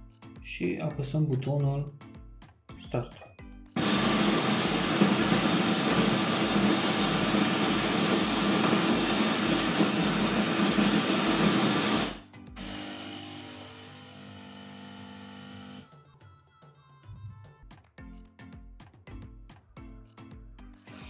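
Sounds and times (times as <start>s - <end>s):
coffee grinder grinding beans: 3.8s - 15.9s.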